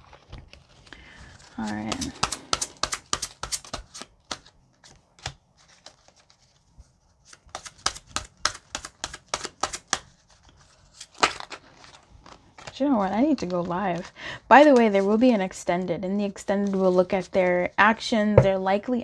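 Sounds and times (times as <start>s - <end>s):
cards being shuffled: 0.0s - 6.6s, 7.2s - 14.1s.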